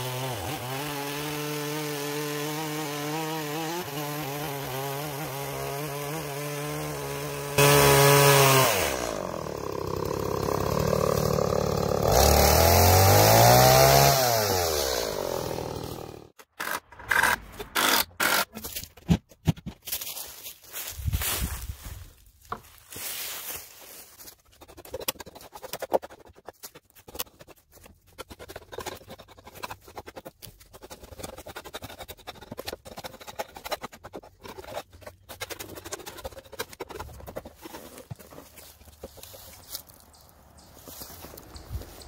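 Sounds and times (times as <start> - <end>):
footsteps in dry leaves: 19.8 - 24.6, 37.6 - 42.0
hands scraping wooden post: 24.2 - 42.0.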